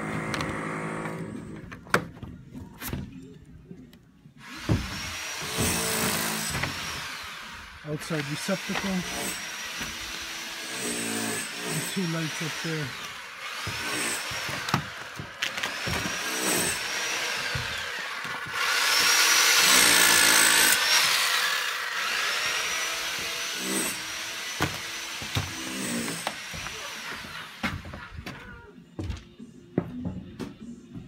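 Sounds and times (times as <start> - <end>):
power tool motor whining: 4.4 - 27.9
harsh working noise: 4.4 - 28.4.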